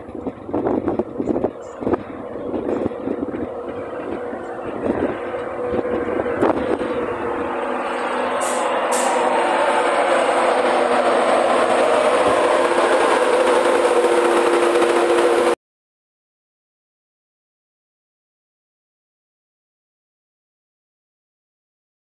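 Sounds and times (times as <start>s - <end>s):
electric locomotive arriving: 0.0s - 15.6s
short high hisses: 7.9s - 9.4s.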